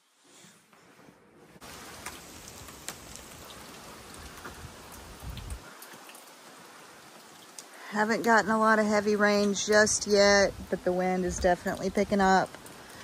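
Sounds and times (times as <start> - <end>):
rain hiss: 1.6 - 13.0
sharp drip ticks: 2.0 - 6.4, 7.1 - 8.4, 11.4 - 13.0
low wind rumble: 3.2 - 5.7.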